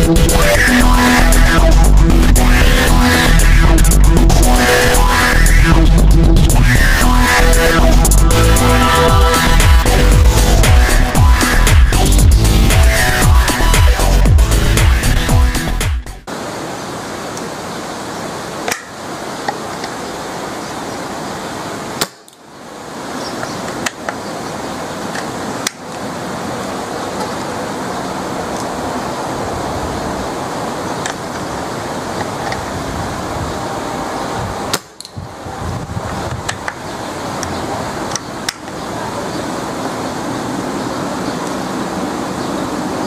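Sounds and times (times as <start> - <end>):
wind on microphone: 28.4 - 43.0.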